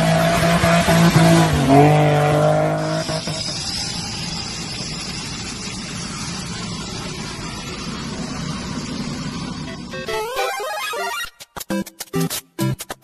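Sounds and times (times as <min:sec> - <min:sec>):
car engine revving: 0:00.0 - 0:10.1
jet taxiing with high whine: 0:03.0 - 0:10.1.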